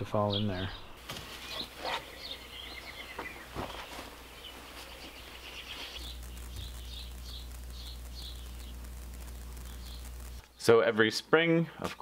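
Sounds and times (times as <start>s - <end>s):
songbirds chirping: 0.0s - 12.0s
bird trill: 0.3s - 3.8s.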